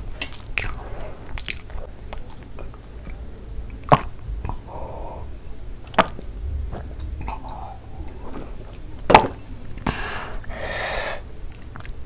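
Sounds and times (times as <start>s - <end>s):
breathy exhales: 4.5s - 5.4s, 6.5s - 8.6s, 9.8s - 11.3s.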